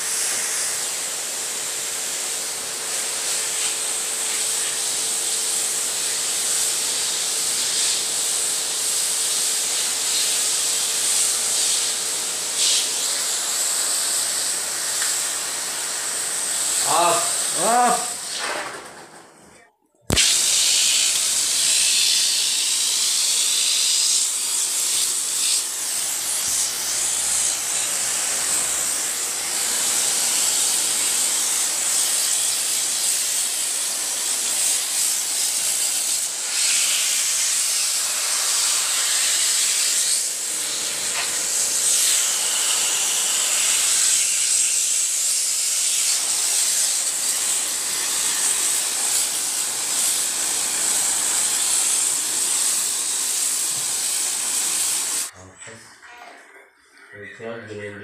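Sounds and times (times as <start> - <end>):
water spraying onto metal fins: 5.9 - 12.9, 20.2 - 55.3.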